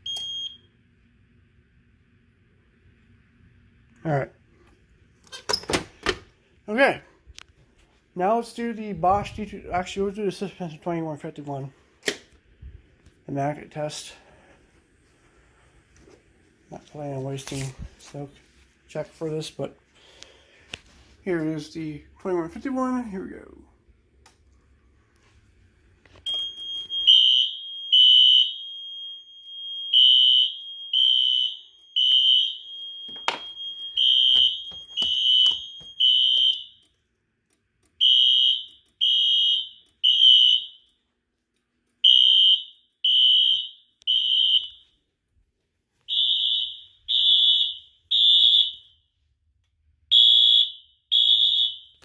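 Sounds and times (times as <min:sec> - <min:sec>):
fire alarm horn beeps: 0:00.0 - 0:00.8, 0:26.2 - 0:37.0, 0:38.0 - 0:41.0, 0:42.0 - 0:45.0, 0:46.1 - 0:49.2, 0:50.1 - 0:52.0.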